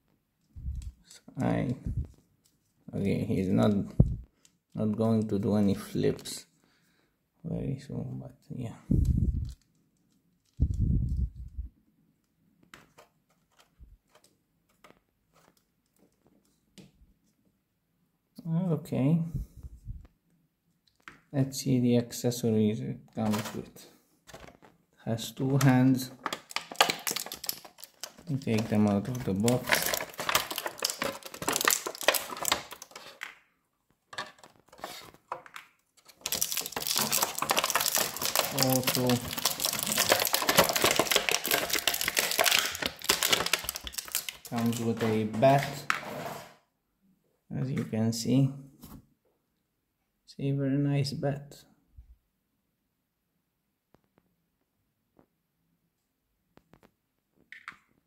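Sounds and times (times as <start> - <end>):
plastic packaging crackling: 23.2 - 23.7, 25.4 - 33.4, 34.1 - 45.9
small plastic pieces clicking: 25.6 - 33.4, 34.2 - 45.1.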